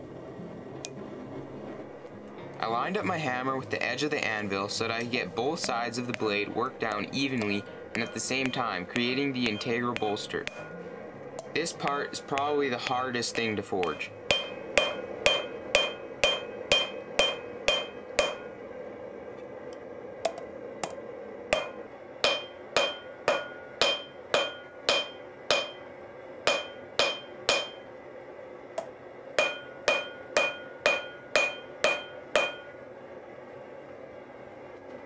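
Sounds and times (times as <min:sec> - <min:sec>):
hammer striking steel on anvil: 0:05.5 - 0:18.6, 0:20.3 - 0:27.9, 0:28.8 - 0:32.8.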